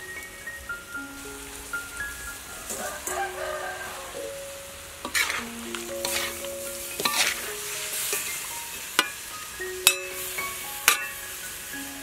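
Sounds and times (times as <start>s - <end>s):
food sizzling in wok: 0.0s - 12.0s
metal ladle scraping wok: 4.9s - 11.2s.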